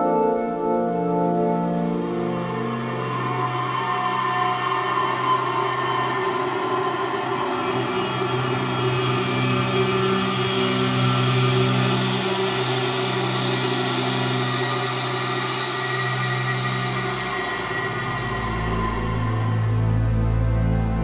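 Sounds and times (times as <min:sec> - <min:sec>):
synthesized ambient drone: 0:00.0 - 0:21.0
held low synth tones: 0:18.4 - 0:21.0.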